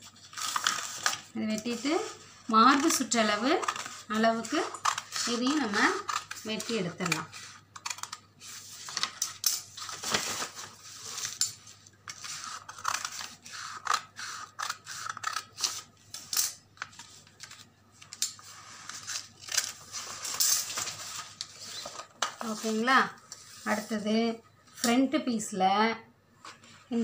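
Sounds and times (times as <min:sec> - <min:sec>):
scissors snipping paper: 0:02.7 - 0:08.2, 0:12.1 - 0:18.4.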